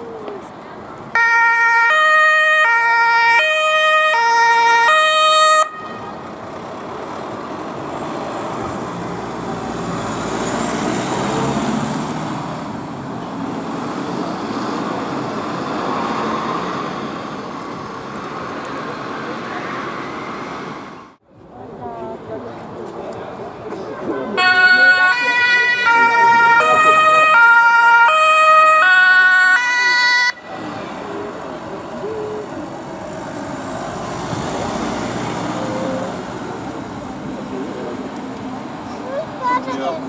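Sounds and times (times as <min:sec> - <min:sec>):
two-tone siren: 0:01.2 - 0:06.1, 0:24.4 - 0:30.6
vehicle rumble driving away: 0:06.1 - 0:21.2, 0:30.4 - 0:39.4.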